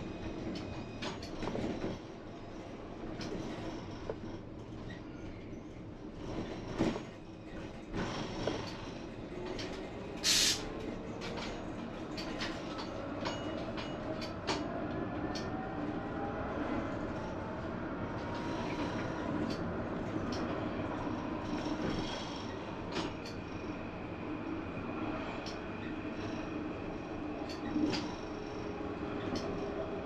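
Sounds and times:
rolling rumble of tram: 0.0 - 30.0
short loud hiss: 10.2 - 10.6.

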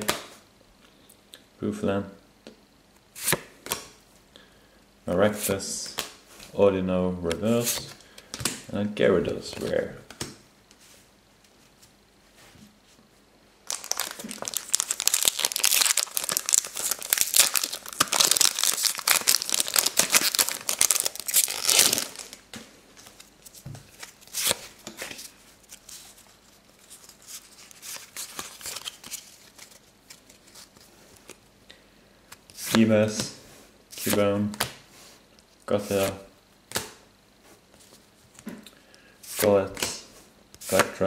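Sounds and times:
wrapper crinkling and tearing: 13.6 - 22.4, 26.8 - 30.8
cards rustling and clicking: 13.7 - 22.4, 26.8 - 31.4.

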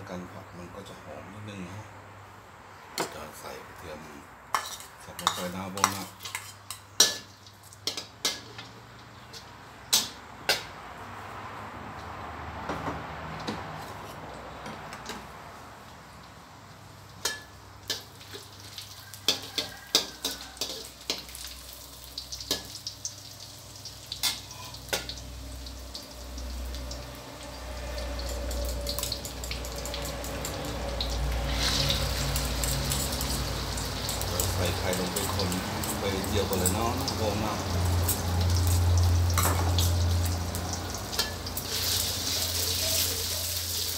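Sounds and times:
metal spatula scraping wok: 4.5 - 8.6, 17.2 - 21.6, 27.3 - 43.9
garlic sizzling in hot fat: 16.8 - 43.9
egg sizzling in hot fat: 17.0 - 43.9.

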